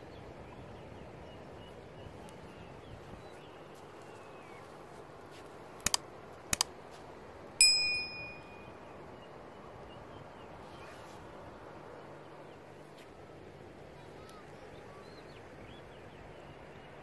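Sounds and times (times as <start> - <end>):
quick double clicks: 5.8 - 6.7
metallic ding ringing out: 7.6 - 8.8.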